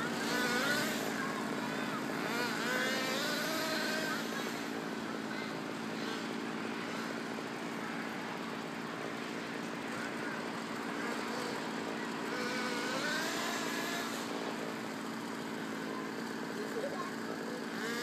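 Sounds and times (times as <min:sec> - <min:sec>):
rc car motor running: 0:00.0 - 0:18.0.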